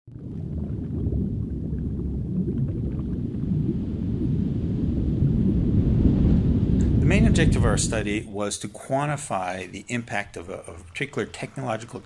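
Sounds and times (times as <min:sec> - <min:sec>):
deep underwater rumble: 0:00.1 - 0:08.4
bubbling and gurgling: 0:00.1 - 0:12.0.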